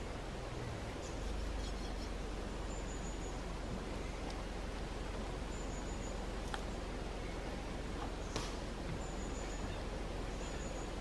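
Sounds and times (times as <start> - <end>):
woodland background hiss: 0.0 - 11.0
thin high bird peep: 1.0 - 3.4.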